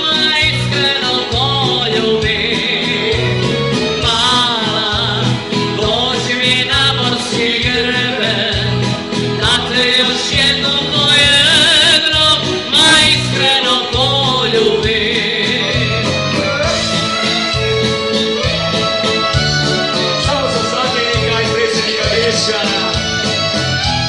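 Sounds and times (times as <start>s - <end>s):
singer with vibrato voice: 0.0s - 17.6s
held bass line: 0.0s - 24.0s
drum beat: 4.0s - 24.0s.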